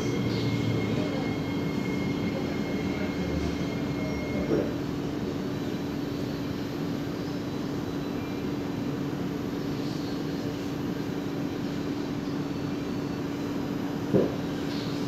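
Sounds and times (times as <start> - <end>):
metro train running noise: 0.0 - 15.0
single knock: 14.1 - 14.4.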